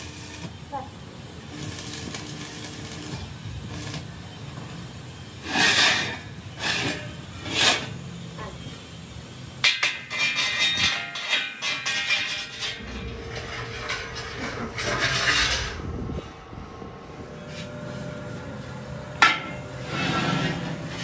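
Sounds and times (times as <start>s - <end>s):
steel band scraping: 10.1s - 16.2s.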